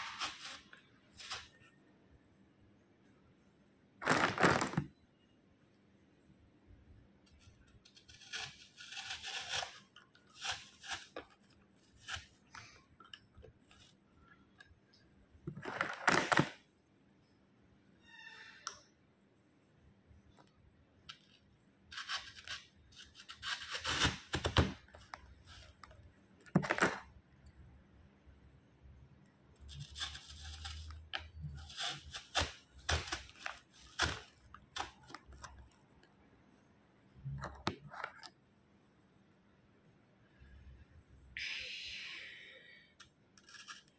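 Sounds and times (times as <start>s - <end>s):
stems scraping plastic pot: 0.0s - 1.6s, 7.3s - 14.6s, 29.6s - 35.8s.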